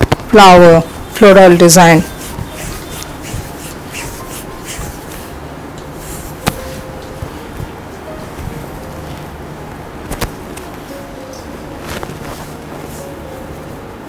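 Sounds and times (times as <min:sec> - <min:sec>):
fabric rustling: 0:01.9 - 0:05.4, 0:06.0 - 0:09.3, 0:11.5 - 0:13.9.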